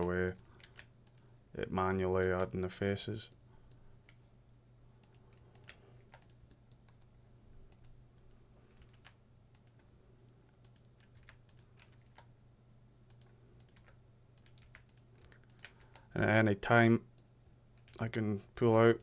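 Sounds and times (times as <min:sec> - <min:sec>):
computer keyboard and mouse clicks: 0:00.0 - 0:01.3, 0:05.0 - 0:08.0, 0:08.8 - 0:09.9, 0:10.5 - 0:12.3, 0:13.1 - 0:16.1, 0:17.2 - 0:18.1
low steady hum: 0:00.0 - 0:19.0.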